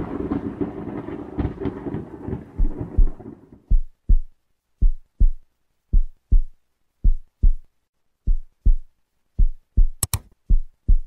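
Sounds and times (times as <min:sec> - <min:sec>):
heartbeat thumps: 0:02.6 - 0:11.0
sharp clicks: 0:10.0 - 0:10.4.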